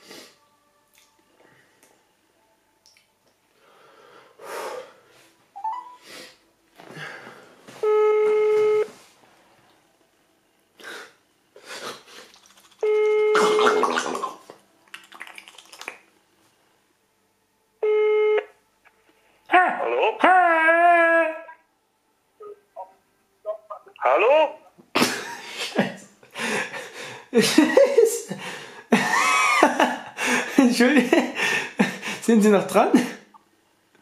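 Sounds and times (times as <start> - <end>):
breathy noises: 3.6 - 7.9
phone ringback tone: 7.8 - 8.9, 12.8 - 13.8, 17.8 - 18.5.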